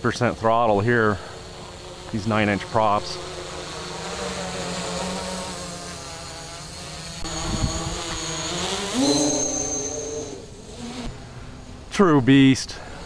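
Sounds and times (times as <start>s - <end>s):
quadcopter motors humming: 0.0s - 12.0s, 12.7s - 13.0s.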